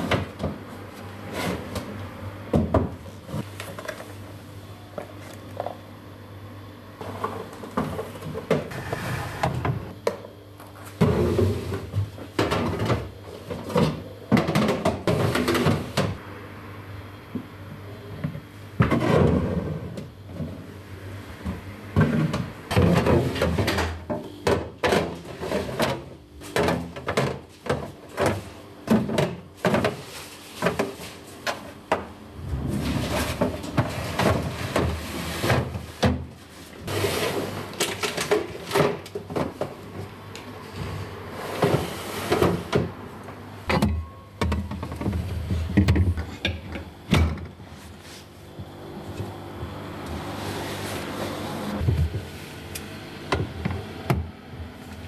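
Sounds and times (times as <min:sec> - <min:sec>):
kitchen items knocking and clattering: 0:11.0 - 0:16.2, 0:21.5 - 0:40.0, 0:43.7 - 0:47.6.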